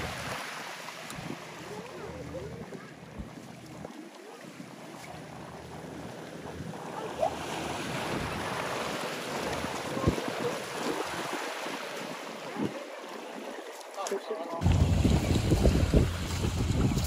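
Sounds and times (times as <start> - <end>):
small waves lapping at shore: 0.0 - 17.0
wind on microphone: 6.5 - 12.8, 14.6 - 17.0.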